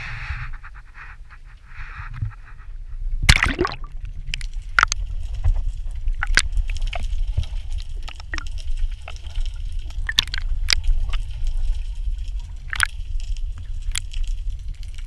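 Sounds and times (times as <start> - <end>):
muffled underwater water rumble: 0.0 - 15.0
sharp clicks and pops: 3.2 - 15.0.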